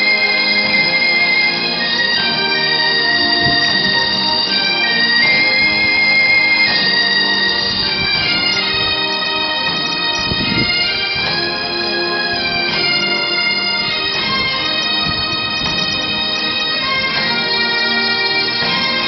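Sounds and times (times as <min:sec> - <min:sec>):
bagpipes playing a tune: 0:00.0 - 0:19.0.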